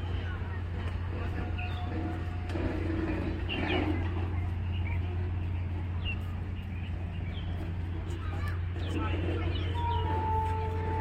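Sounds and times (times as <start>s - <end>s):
faint voices: 0.0s - 11.0s
steady low hum: 0.0s - 11.0s
small birds chirping: 3.2s - 10.4s.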